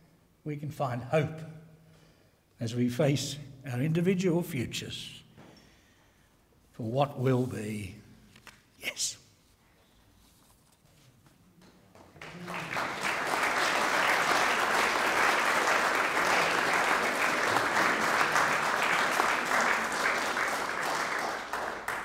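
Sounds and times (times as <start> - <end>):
audience applauding: 12.0 - 22.0.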